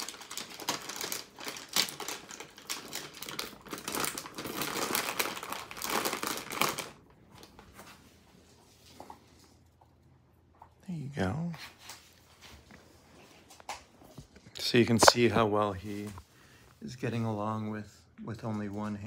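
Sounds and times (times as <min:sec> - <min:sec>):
plastic snack bag crinkling: 0:00.0 - 0:07.7.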